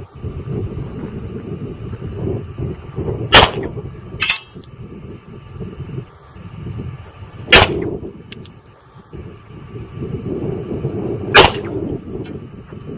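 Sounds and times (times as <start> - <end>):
pistol shots: 3.3 - 3.7, 7.5 - 7.9, 11.4 - 11.8.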